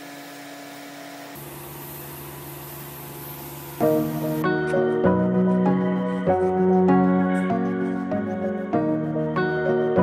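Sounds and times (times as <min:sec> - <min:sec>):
piano background music: 0:03.8 - 0:10.0.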